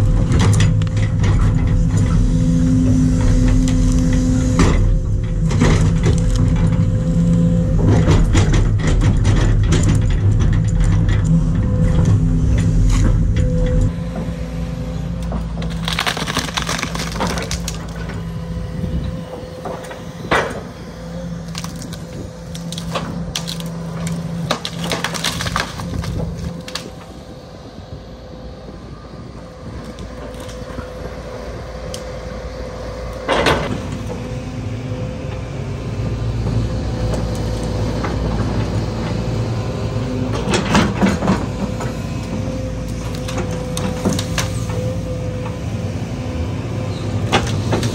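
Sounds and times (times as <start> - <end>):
excavator engine and hydraulics: 0.0 - 47.9
debris cracking and crashing: 15.5 - 18.2, 21.4 - 27.1.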